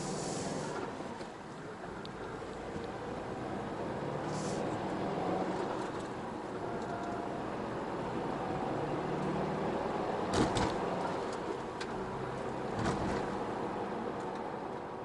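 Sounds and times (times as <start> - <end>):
car road and engine noise: 0.0 - 15.0.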